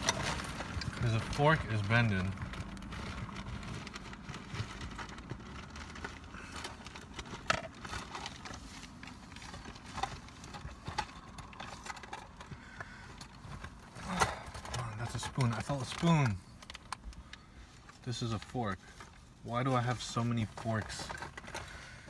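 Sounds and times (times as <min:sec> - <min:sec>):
plastic packaging rustling: 0:00.0 - 0:22.0.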